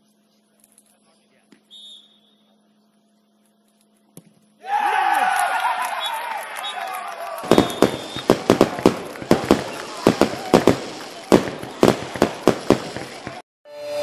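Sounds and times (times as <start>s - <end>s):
people clapping: 4.8s - 13.4s
faint voices: 8.2s - 13.4s.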